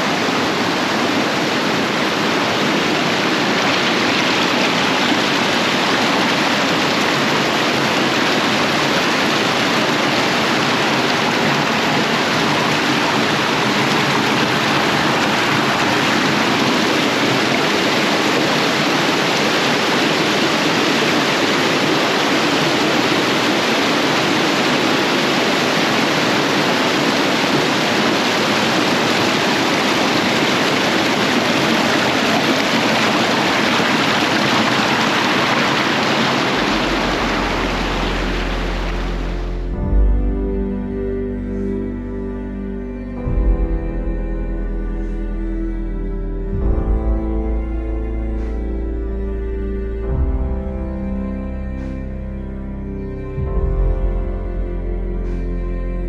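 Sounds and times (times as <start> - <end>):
water rushing in rocky stream: 0.0 - 39.8.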